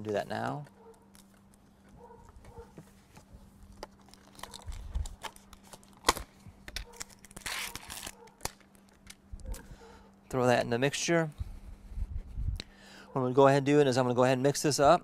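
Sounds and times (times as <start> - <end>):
plastic clicks and crinkles: 3.7 - 9.6
seal peeling tear: 4.0 - 8.7.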